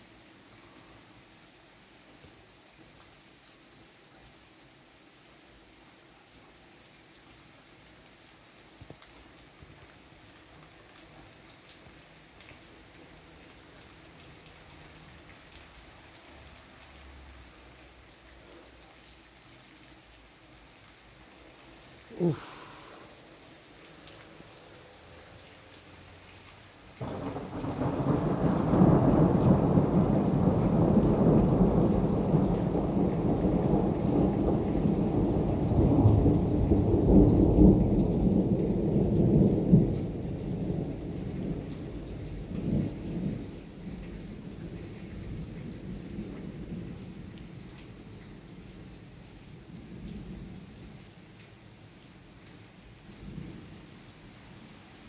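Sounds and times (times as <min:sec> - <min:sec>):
rolling thunder rumble: 0:27.0 - 0:43.5.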